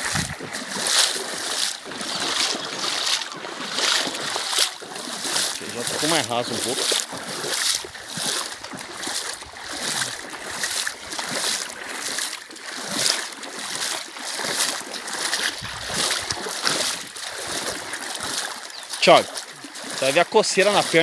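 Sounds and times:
wading through water: 0:00.0 - 0:21.0.

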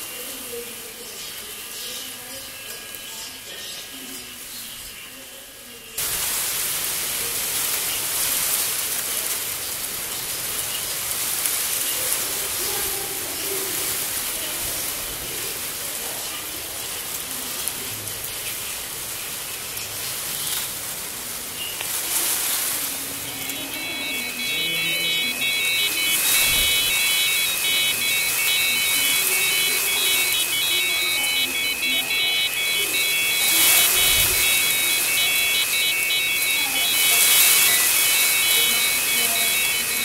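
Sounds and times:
synthesizer noise hiss: 0:06.0 - 0:40.0
faint held synthesizer tones: 0:21.6 - 0:40.0.

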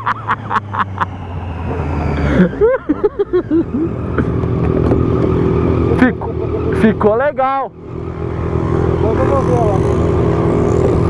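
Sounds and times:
motorcycle engine running: 0:03.7 - 0:11.0.

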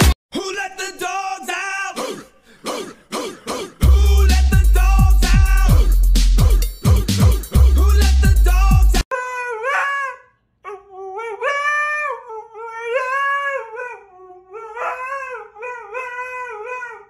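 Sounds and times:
dog howling: 0:09.2 - 0:17.0.

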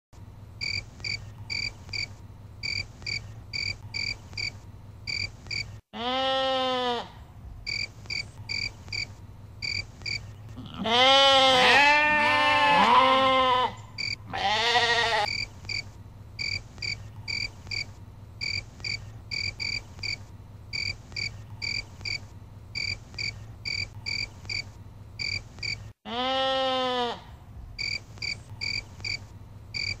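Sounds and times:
sheep bleating: 0:06.0 - 0:07.2, 0:10.6 - 0:15.3, 0:26.1 - 0:27.3.

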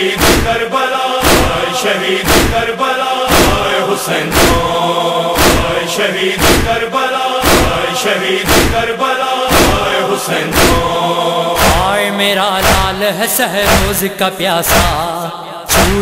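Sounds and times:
chest-beating strokes: 0:00.0 - 0:06.8, 0:07.4 - 0:11.9
male chorus chanting: 0:00.0 - 0:16.0.

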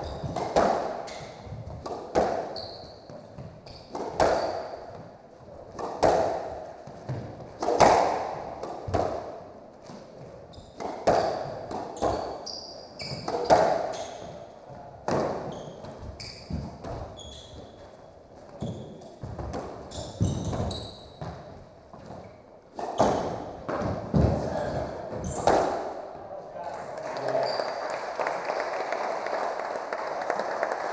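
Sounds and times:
shoes squeaking on hardwood floor: 0:00.0 - 0:01.8, 0:02.4 - 0:05.1, 0:09.8 - 0:25.6, 0:27.3 - 0:27.8
squash ball hitting rackets and walls: 0:00.0 - 0:26.2.

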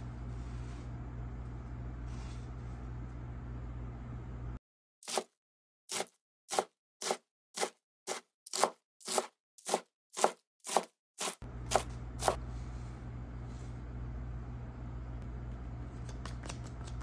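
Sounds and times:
low hum: 0:00.0 - 0:04.6, 0:11.4 - 0:17.0
knife chopping on cutting board: 0:05.9 - 0:12.4.

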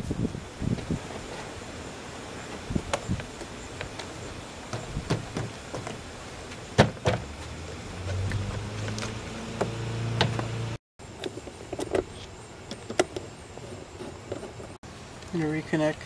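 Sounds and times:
handling knocks: 0:04.7 - 0:07.4.

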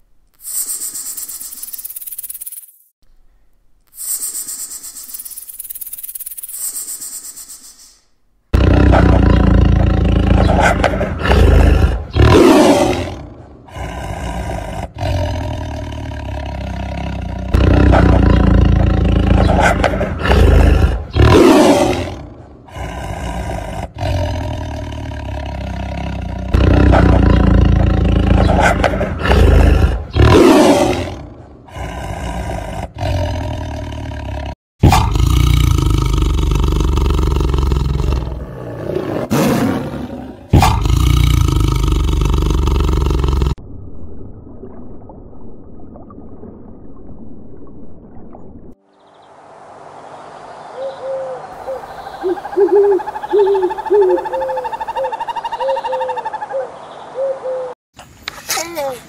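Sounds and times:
large animal roaring: 0:08.5 - 0:43.6.

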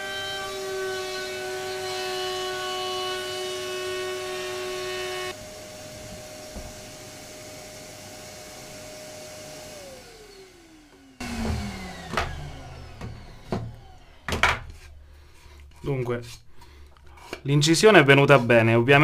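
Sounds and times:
router cutting wood: 0:00.0 - 0:15.0
router motor whining: 0:00.0 - 0:15.0
wooden board handled: 0:11.4 - 0:16.4.

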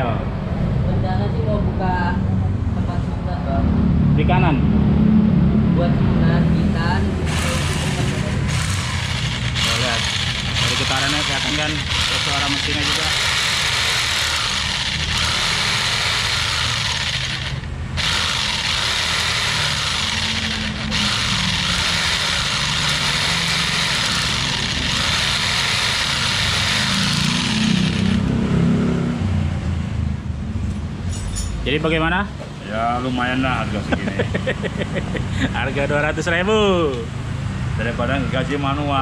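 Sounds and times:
jigsaw running: 0:07.2 - 0:28.4.

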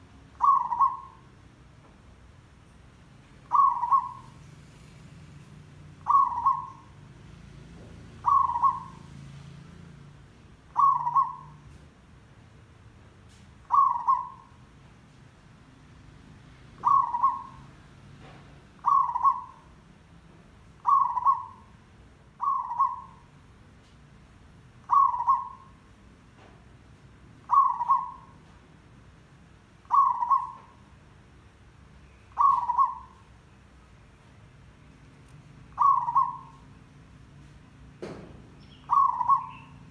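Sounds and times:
dove cooing: 0:00.0 - 0:01.3, 0:03.4 - 0:04.5, 0:06.0 - 0:07.0, 0:08.1 - 0:09.1, 0:10.7 - 0:11.6, 0:13.6 - 0:14.6, 0:16.8 - 0:17.8, 0:18.8 - 0:19.7, 0:20.8 - 0:21.8, 0:22.4 - 0:23.2, 0:24.8 - 0:25.8, 0:27.4 - 0:28.5, 0:29.9 - 0:30.8, 0:32.3 - 0:33.2, 0:35.7 - 0:36.6, 0:38.9 - 0:39.9.

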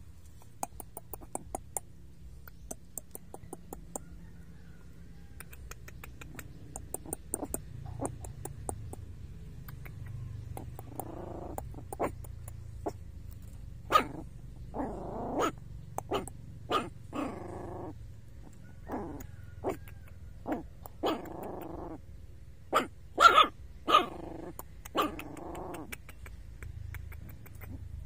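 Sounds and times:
puppy growling: 0:00.6 - 0:04.4, 0:05.4 - 0:28.0
puppy barking: 0:09.8 - 0:13.0, 0:13.9 - 0:22.0, 0:22.7 - 0:26.4.

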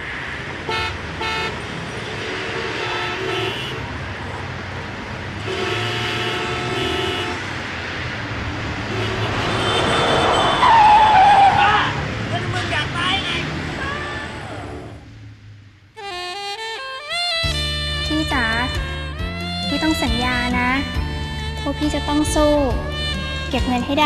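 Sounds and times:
steady traffic noise: 0:00.0 - 0:24.0
car horns tooting: 0:00.7 - 0:01.6, 0:02.2 - 0:03.9, 0:05.4 - 0:07.6, 0:08.8 - 0:14.4, 0:16.0 - 0:24.0.

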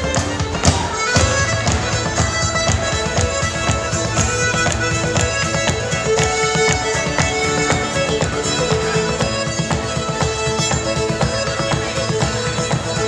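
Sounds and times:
fiddle: 0:00.0 - 0:13.0
piano accordion: 0:00.0 - 0:13.0
strummed acoustic guitar: 0:00.0 - 0:13.0.

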